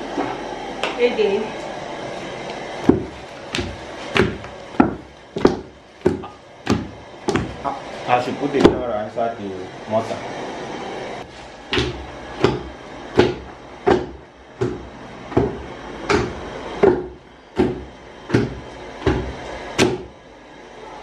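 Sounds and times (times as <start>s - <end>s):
pestle pounding in wooden mortar: 2.8s - 7.7s, 8.6s - 8.9s, 11.7s - 20.2s.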